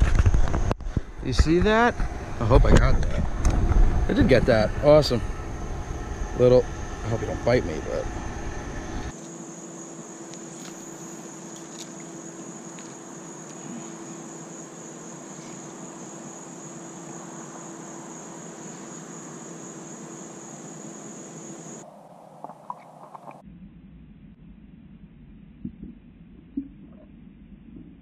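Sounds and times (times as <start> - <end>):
low hum: 0.0 - 9.2, 21.8 - 28.0
insects droning: 0.0 - 23.4
background hiss: 0.9 - 23.4.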